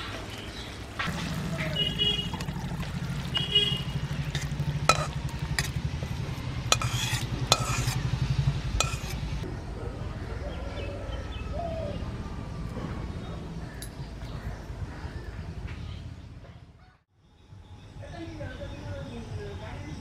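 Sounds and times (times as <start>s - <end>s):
metal spatula scraping steel dish: 4.3s - 5.8s, 6.6s - 8.1s, 8.8s - 9.2s.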